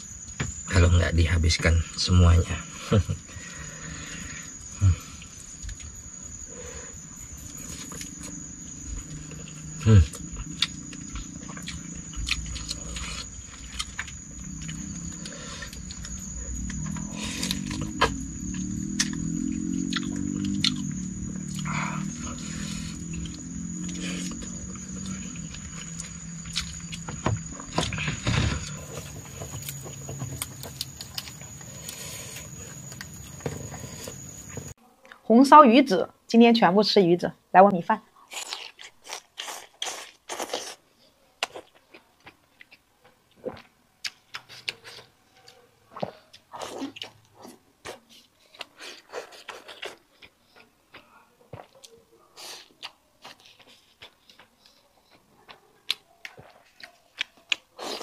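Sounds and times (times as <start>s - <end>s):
high-pitched whine: 0.0s - 34.8s
night insects droning: 0.0s - 40.8s
chewing and lip-smacking: 7.7s - 27.7s, 28.9s - 34.2s, 41.4s - 58.0s.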